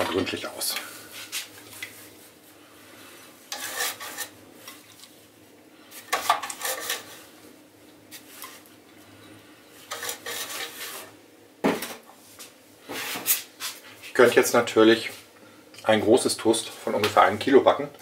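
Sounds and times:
brush scrubbing metal tin: 3.5 - 4.3, 9.9 - 11.1.

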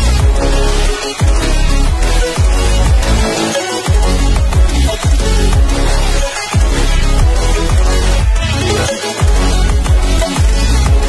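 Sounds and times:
electronic dance music: 0.0 - 11.0.

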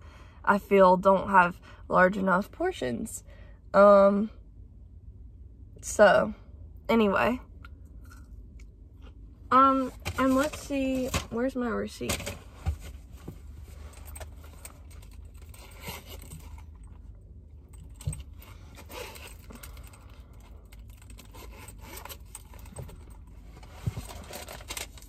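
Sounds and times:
low steady hum: 0.0 - 25.0
rustles scrapes and clicks: 20.7 - 25.0.

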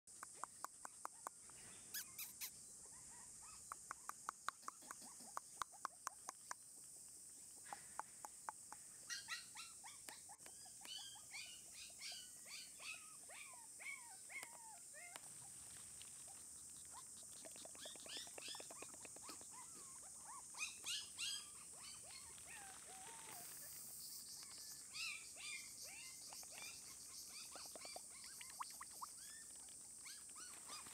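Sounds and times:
puppy whimpering and squeaking: 1.9 - 3.6.

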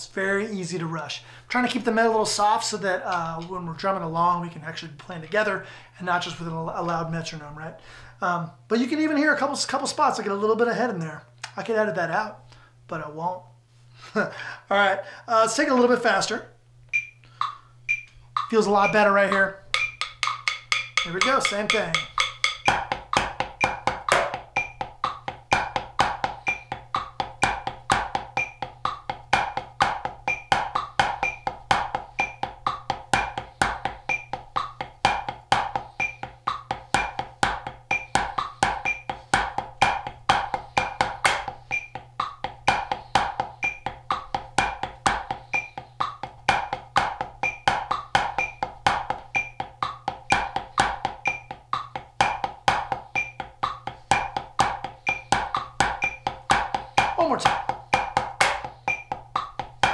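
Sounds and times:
drumsticks on practice pad: 16.9 - 59.9
metronome clicking: 16.9 - 59.9.

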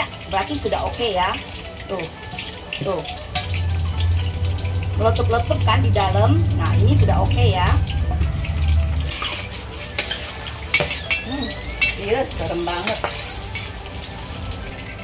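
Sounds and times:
chilies sizzling and popping in oil: 0.0 - 15.0
metal ladle clinking against wok: 3.3 - 3.6, 9.1 - 13.8
low hum: 3.4 - 9.1.

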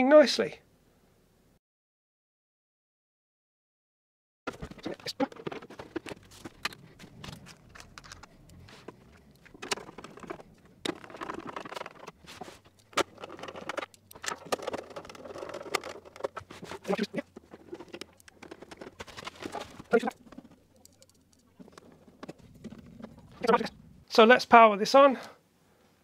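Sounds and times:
rustling: 4.5 - 24.3.

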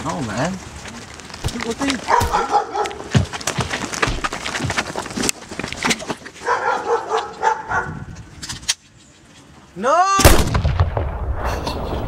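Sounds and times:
blows and heavy thuds: 3.1 - 6.0.

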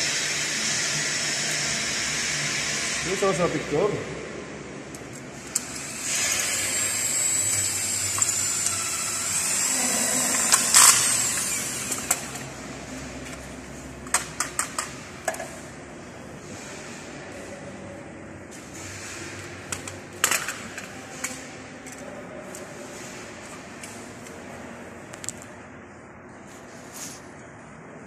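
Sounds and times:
cordless drill motor whining: 5.4 - 12.5.

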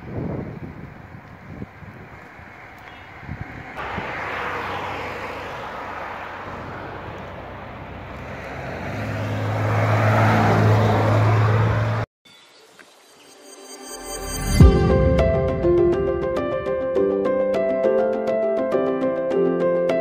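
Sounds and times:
vehicle engine and tyre noise: 0.0 - 12.1.

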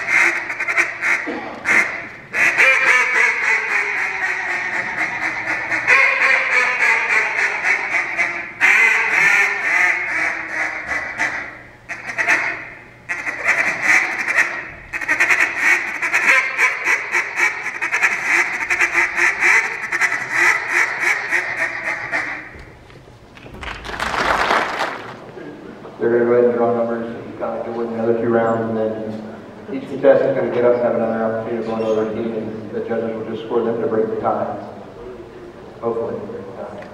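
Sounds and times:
duck call quacks and chatter: 0.0 - 22.5.

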